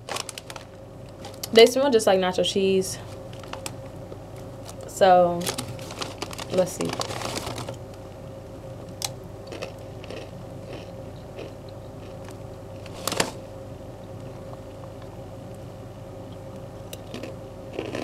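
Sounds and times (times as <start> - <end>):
tortilla chips crunching: 0.0 - 1.5, 3.2 - 3.9, 4.5 - 7.8, 9.4 - 13.4, 16.9 - 18.0
foil bag crinkling: 0.0 - 1.6, 3.0 - 3.9, 4.5 - 8.0, 12.8 - 13.4
faint steady hum: 0.0 - 18.0.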